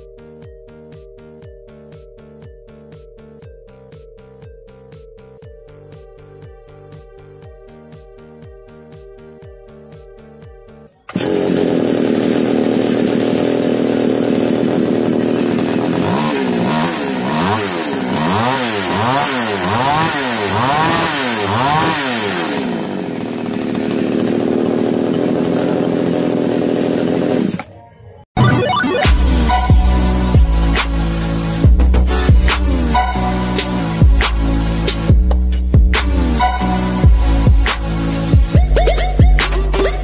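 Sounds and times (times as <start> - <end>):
background music: 0.0 - 11.1, 27.8 - 40.0
chainsaw running and revving: 11.1 - 27.7, 35.9 - 38.7.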